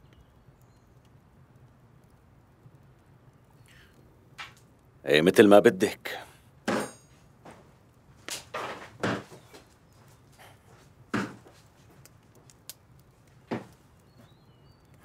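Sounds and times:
faint clicks: 0.0s - 4.9s, 11.8s - 15.0s
knocks and clatters: 8.3s - 9.7s.

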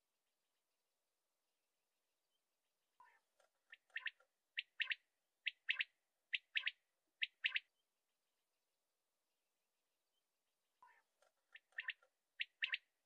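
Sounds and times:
quail singing: 3.0s - 7.7s, 10.8s - 12.9s.

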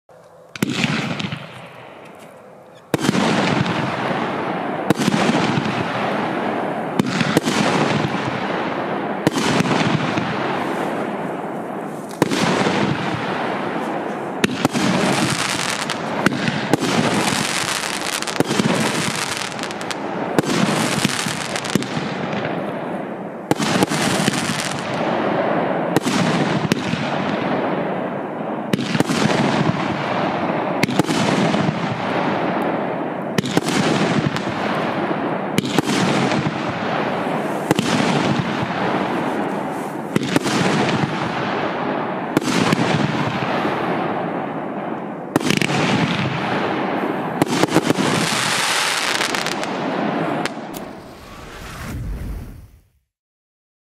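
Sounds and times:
firework bangs: 0.5s - 53.0s
hiss of sparks: 50.7s - 52.9s.

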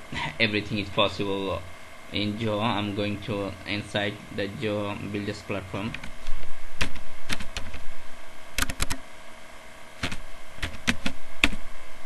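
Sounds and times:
keyboard typing: 8.6s - 9.0s, 10.0s - 11.6s.

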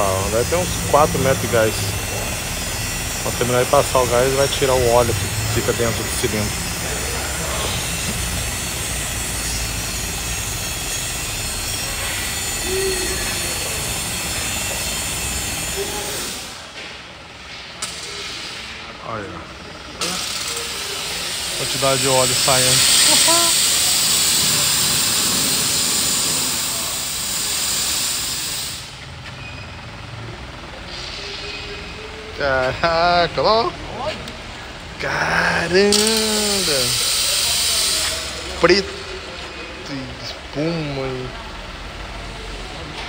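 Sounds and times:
gas rushing hiss: 20.0s - 29.0s, 35.0s - 38.4s.

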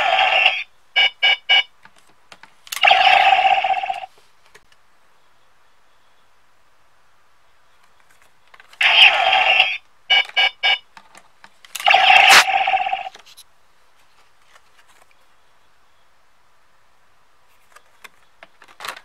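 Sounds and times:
ringing electronic tones: 11.8s - 13.1s
short beeps: 11.9s - 12.5s.

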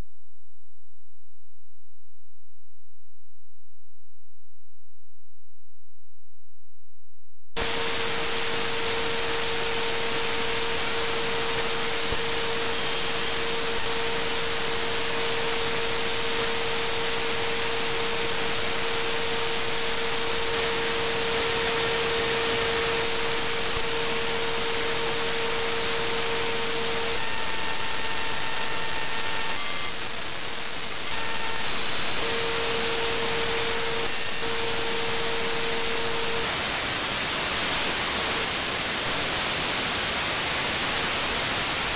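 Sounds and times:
radio static hiss: 29.4s - 41.9s.

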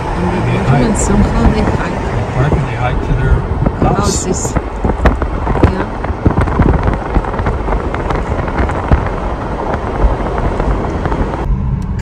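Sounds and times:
road and wind noise in car: 0.0s - 12.0s
short crackles and knocks: 4.5s - 11.4s.

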